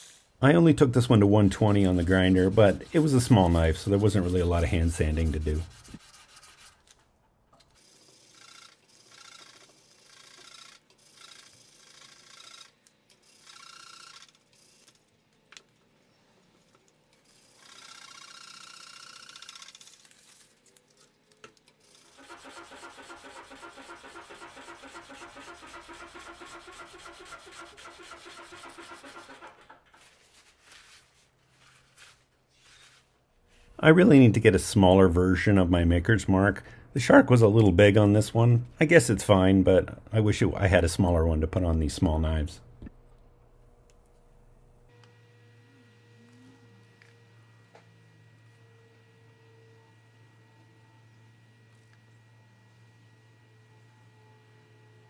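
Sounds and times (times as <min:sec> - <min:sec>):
sanding block rubbing on steel: 0:01.1 - 0:06.8, 0:26.6 - 0:29.3.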